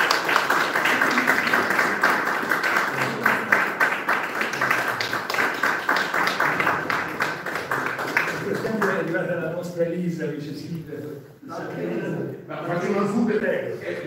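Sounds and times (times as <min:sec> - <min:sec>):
people applauding: 0:00.0 - 0:09.3.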